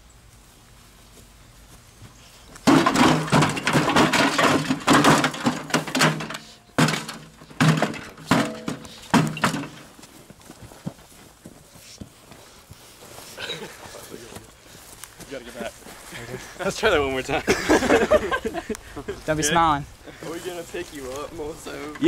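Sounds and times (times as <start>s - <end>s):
sharp bangs: 2.6s - 9.8s
blows striking metal casing: 2.6s - 9.9s.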